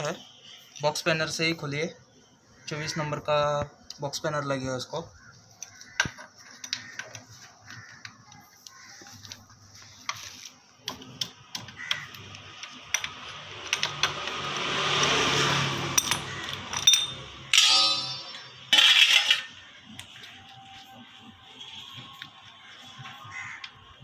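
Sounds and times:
spanner clinking on metal nut: 11.2s - 15.2s, 16.0s - 19.5s.

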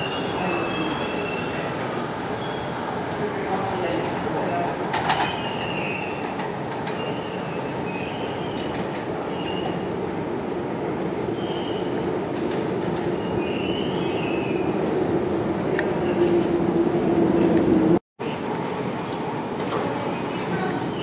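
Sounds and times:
subway train rumbling in tunnel: 0.0s - 21.0s
high wheel squeals: 13.2s - 14.7s.

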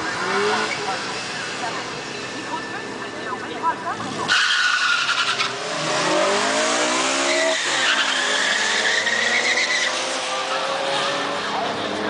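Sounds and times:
cars accelerating hard: 0.0s - 3.0s, 4.0s - 12.0s.

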